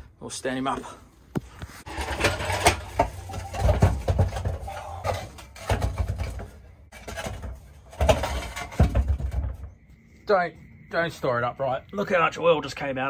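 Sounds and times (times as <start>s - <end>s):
heavy metal clunks and knocks: 1.9s - 9.7s.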